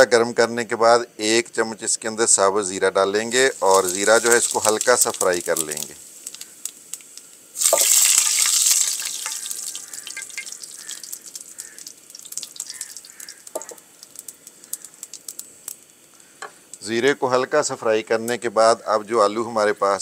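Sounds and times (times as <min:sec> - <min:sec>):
cumin seeds sizzling in oil: 0:03.1 - 0:17.2
crackles and clicks: 0:03.3 - 0:16.9
spatula stirring in a pan: 0:03.6 - 0:15.3.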